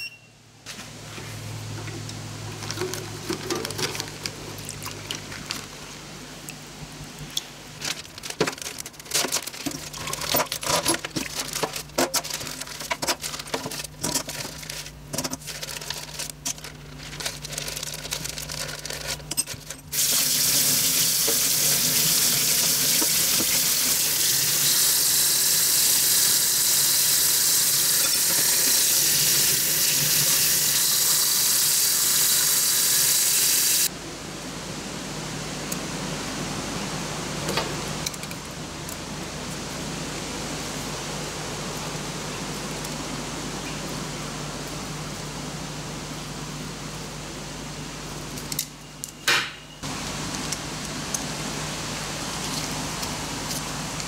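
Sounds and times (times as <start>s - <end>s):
tap water running into sink: 20.0s - 33.9s.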